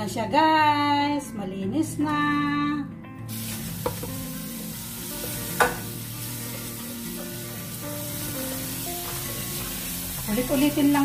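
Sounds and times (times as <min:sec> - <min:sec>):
water running: 0:03.3 - 0:11.0.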